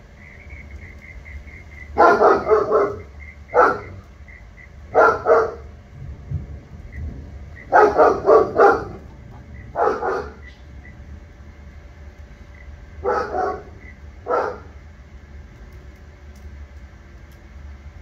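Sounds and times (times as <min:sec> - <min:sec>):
steady low rumble: 0:00.0 - 0:18.0
dog barking: 0:02.0 - 0:04.0, 0:04.9 - 0:05.7, 0:07.7 - 0:10.5, 0:13.0 - 0:14.7.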